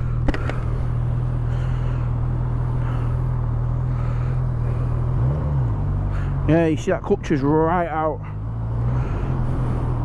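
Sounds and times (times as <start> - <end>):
motorcycle engine idling: 0.0 - 5.2.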